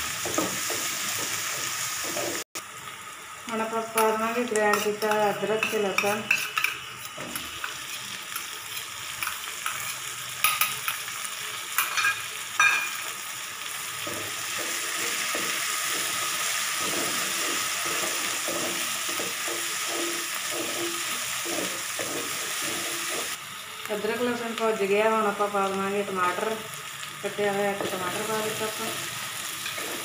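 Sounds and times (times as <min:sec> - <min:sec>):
paste sizzling in hot oil: 0:00.0 - 0:24.4, 0:25.2 - 0:30.0
spatula knocking on pan: 0:16.8 - 0:23.3
wooden spatula scraping pan: 0:16.8 - 0:23.4.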